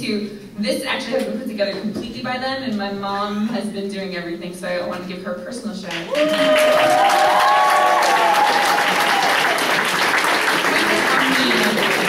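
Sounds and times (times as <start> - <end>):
people clapping: 5.9 - 12.0
people cheering: 6.1 - 12.0.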